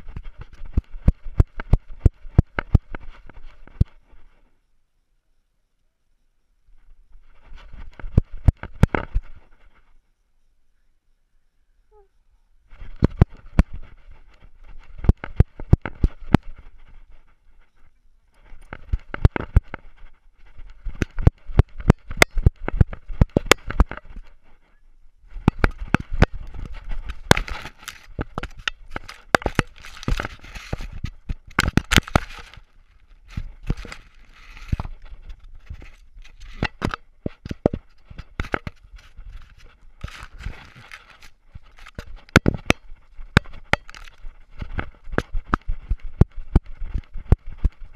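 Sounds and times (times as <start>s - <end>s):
scraping and rubbing: 0.0s - 4.5s, 6.7s - 10.0s, 12.7s - 47.9s.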